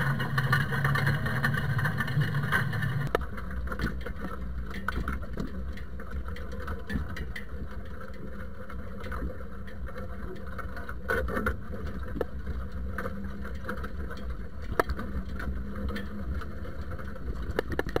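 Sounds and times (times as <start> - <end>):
tractor engine running: 0.0 - 3.2.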